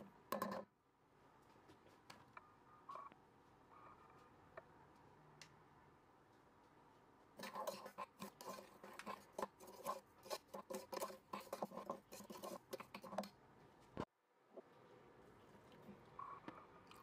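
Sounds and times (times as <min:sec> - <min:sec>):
metal spoon scraping saucepan: 0:07.4 - 0:13.3.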